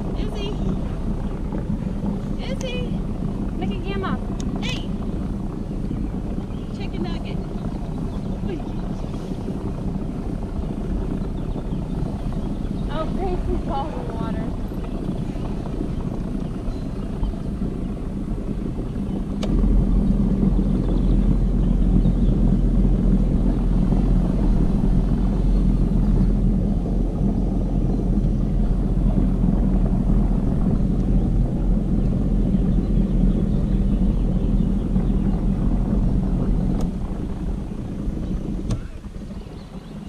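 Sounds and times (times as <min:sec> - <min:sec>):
paddle boat drone and churning: 0:00.0 - 0:40.0.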